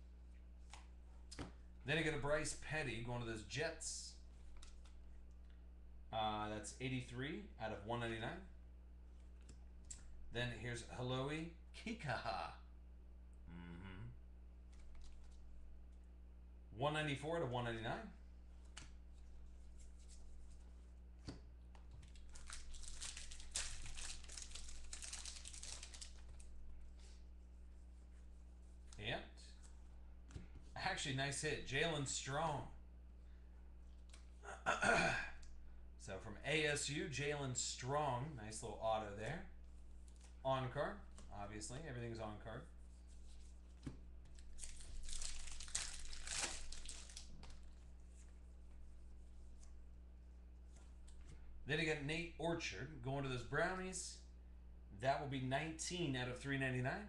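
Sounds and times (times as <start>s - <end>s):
foil wrapper crinkling: 22.0s - 26.6s, 44.3s - 47.8s.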